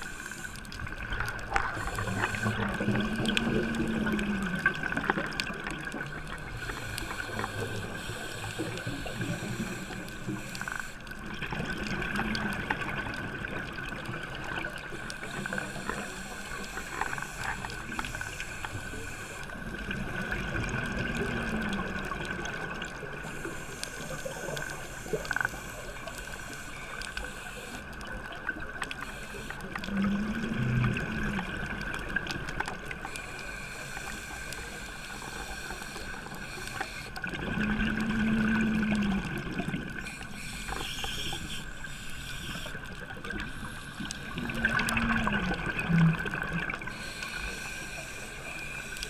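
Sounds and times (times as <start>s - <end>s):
scuba regulator breathing: 0.0s - 4.8s, 5.9s - 11.3s, 14.8s - 21.8s, 22.6s - 31.6s, 32.9s - 49.0s
bubbling exhalations: 44.2s - 46.9s.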